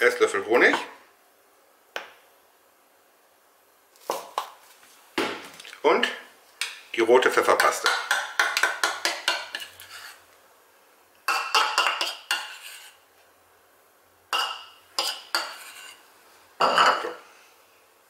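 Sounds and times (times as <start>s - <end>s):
metal spoon scraping a cup: 9.3s - 10.2s, 12.0s - 13.0s, 15.0s - 16.0s.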